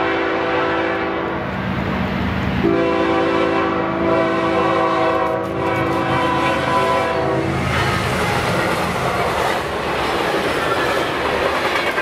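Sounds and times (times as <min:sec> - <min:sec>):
locomotive air horn: 0:00.0 - 0:01.4, 0:02.6 - 0:08.1.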